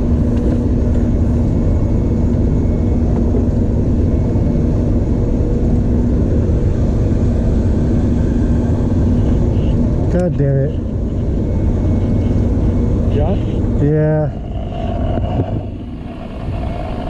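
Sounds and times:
machinery rumbling and droning: 0.0s - 17.0s.

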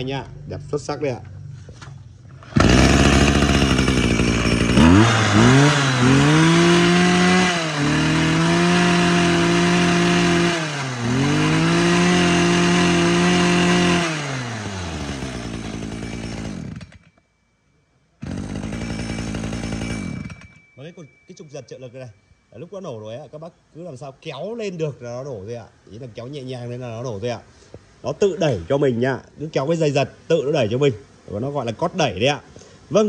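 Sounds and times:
brush cutter engine revving: 2.4s - 17.1s, 18.2s - 20.5s.

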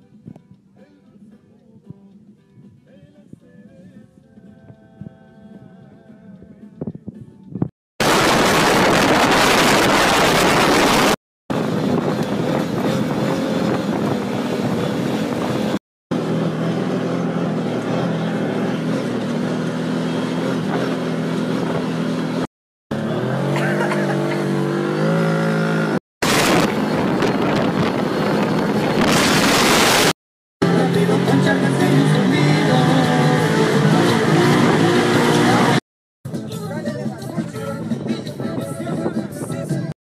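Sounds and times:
wind buffeting: 8.0s - 15.8s, 26.2s - 30.0s
off-road vehicle engine: 8.0s - 38.0s.

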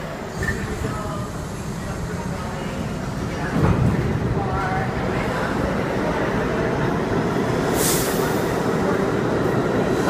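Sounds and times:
subway train pulling out: 0.0s - 10.0s
air hiss: 7.7s - 8.5s.

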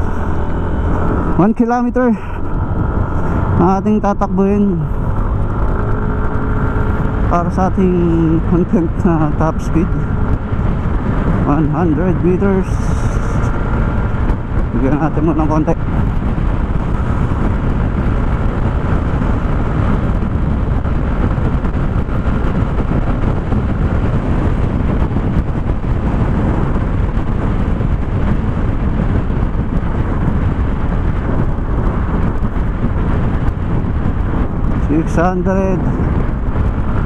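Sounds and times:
wind noise on microphone: 0.0s - 37.0s
scooter engine running: 2.2s - 15.0s.

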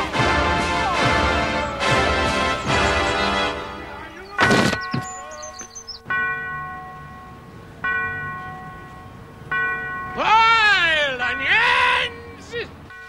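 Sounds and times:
bell ringing: 1.1s - 13.0s
loud thunk: 4.4s - 5.1s.

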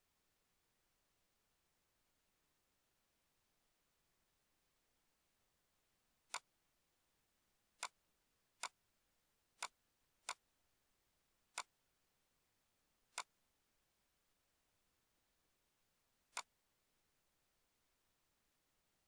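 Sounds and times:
computer mouse clicking: 9.6s - 10.4s, 16.3s - 16.5s.

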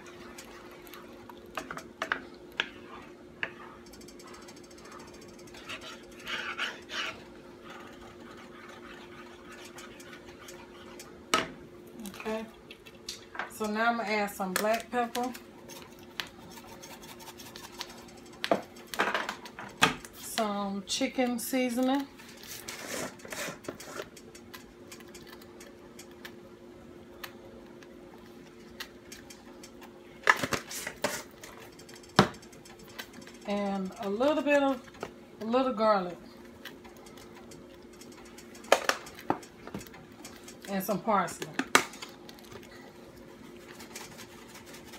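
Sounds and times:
steady low hum: 0.0s - 44.9s
wooden spoon stirring gravy: 5.5s - 11.2s.

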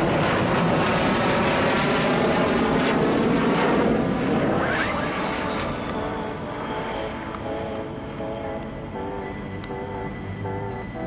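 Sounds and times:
jet engine roar with whine: 0.0s - 11.0s.

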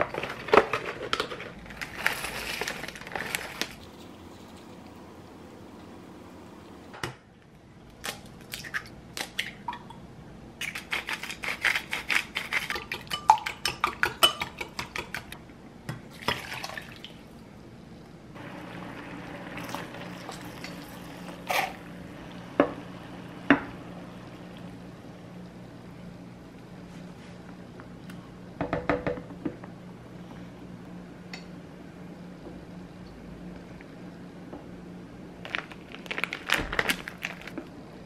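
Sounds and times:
low hum: 18.3s - 28.6s
boiling water bubbling: 18.4s - 25.6s.

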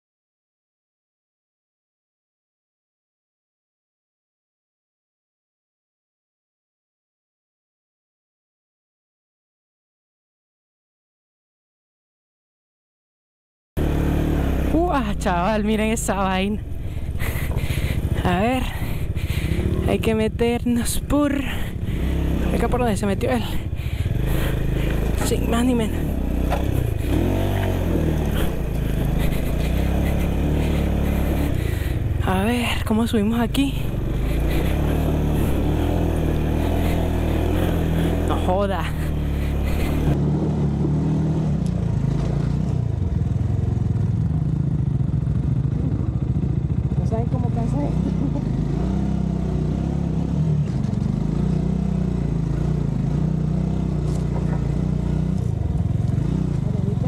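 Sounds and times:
motorcycle engine revving: 13.8s - 57.0s.

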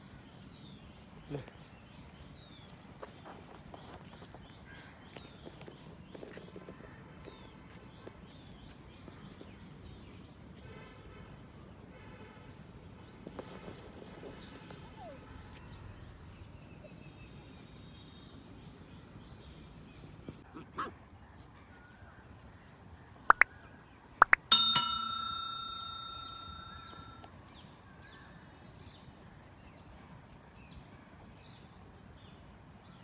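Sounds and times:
bell chime: 24.5s - 27.3s.

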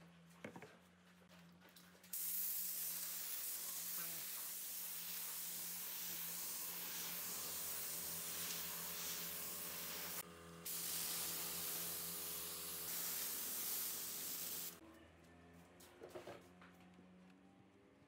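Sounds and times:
air hissing: 2.2s - 14.8s.

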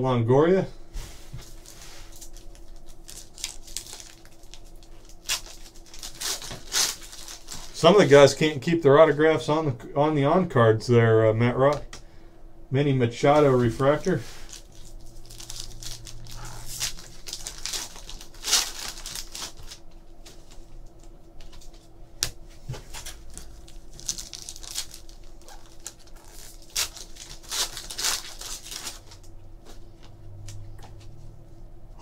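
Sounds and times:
foil wrapper tearing and crinkling: 1.4s - 8.2s, 14.3s - 19.9s, 22.9s - 29.3s.

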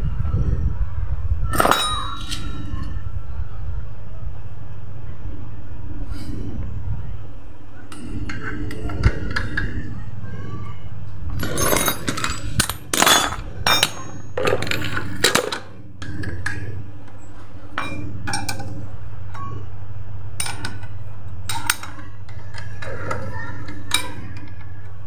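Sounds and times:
steady low hum: 0.0s - 25.0s
steel tools clanking on metal: 1.6s - 2.7s, 11.4s - 19.5s, 20.4s - 24.7s.

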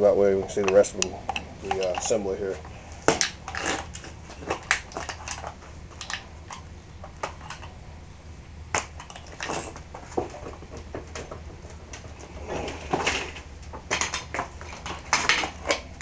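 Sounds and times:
hand tool metallic clicks and clanks: 0.5s - 2.3s.

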